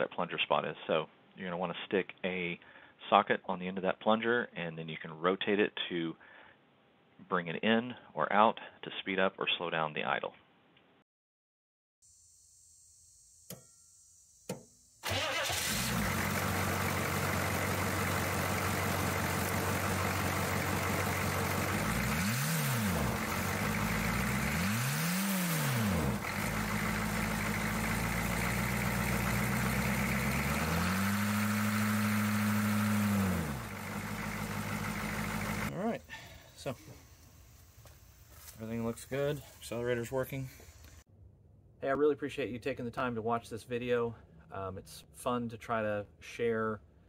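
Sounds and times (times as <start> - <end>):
engine revving: 15.0 - 35.7
diesel engine starting and idling: 15.0 - 37.4.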